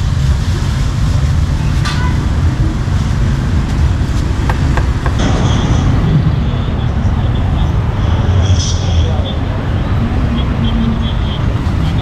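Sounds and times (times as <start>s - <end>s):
street traffic rumble: 0.0s - 12.0s
cleaver knocking on chopping board: 4.5s - 5.2s.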